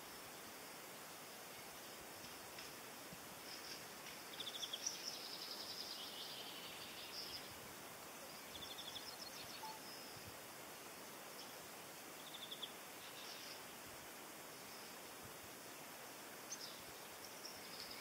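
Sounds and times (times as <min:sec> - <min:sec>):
outdoor hiss: 0:00.0 - 0:18.0
songbird trills and chirps: 0:03.5 - 0:07.6, 0:08.2 - 0:10.4, 0:11.2 - 0:13.8, 0:16.4 - 0:18.0.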